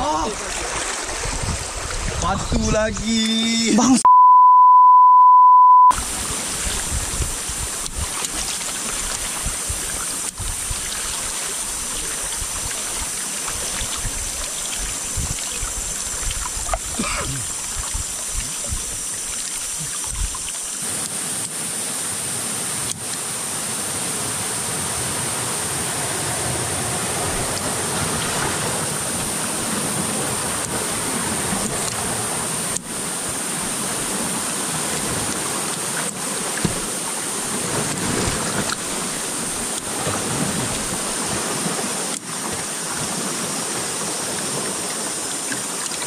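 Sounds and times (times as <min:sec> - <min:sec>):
fast-flowing river current: 0:00.0 - 0:04.0, 0:05.9 - 0:46.0
censor bleep: 0:04.0 - 0:06.0.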